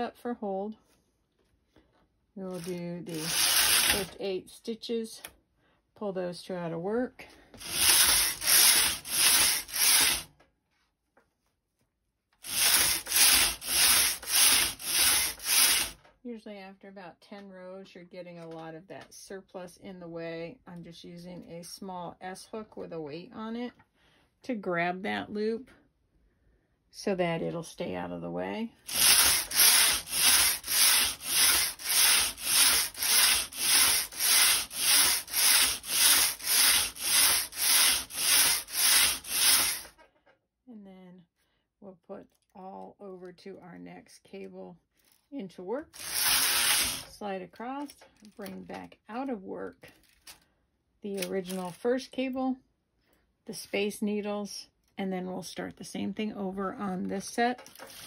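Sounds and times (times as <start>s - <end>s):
knitting machine carriage sliding: 2.5s - 4.3s, 7.6s - 10.3s, 12.4s - 16.0s, 28.9s - 40.0s, 45.9s - 47.2s, 57.6s - 58.0s.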